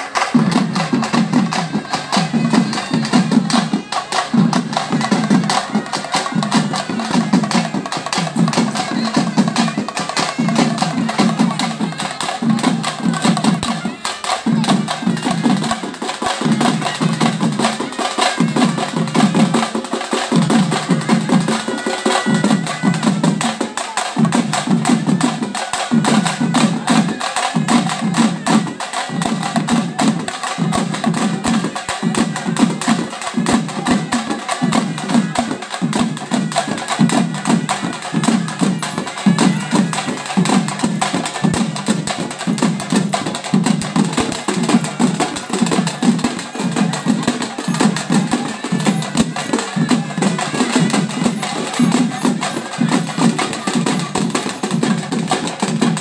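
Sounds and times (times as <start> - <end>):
barrel drums beaten with sticks: 0.0 - 56.0.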